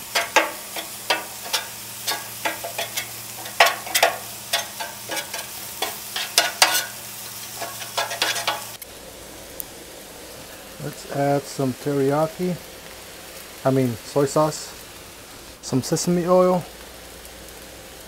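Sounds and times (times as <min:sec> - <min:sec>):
metal spatula scraping and clacking: 0:00.0 - 0:08.8
rice sizzling on griddle: 0:00.0 - 0:18.0.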